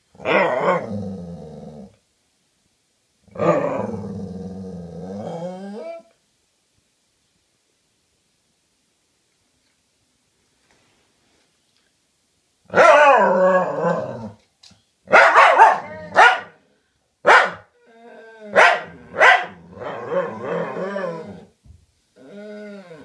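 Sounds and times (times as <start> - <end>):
dog growly moan: 3.3 - 6.1, 17.8 - 21.5, 22.2 - 23.0
dog barking: 12.7 - 13.1, 15.1 - 16.6, 17.2 - 17.7, 18.6 - 20.0.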